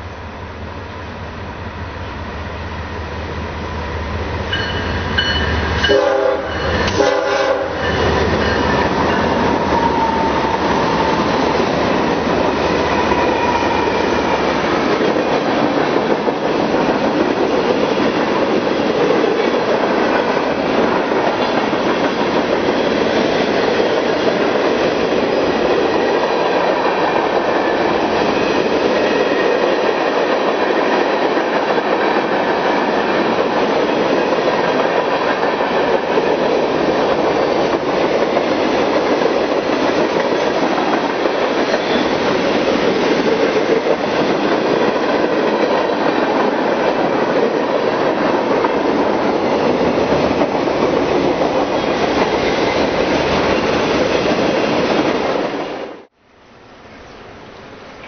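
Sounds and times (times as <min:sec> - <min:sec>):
train horn chord: 0:04.6 - 0:08.2.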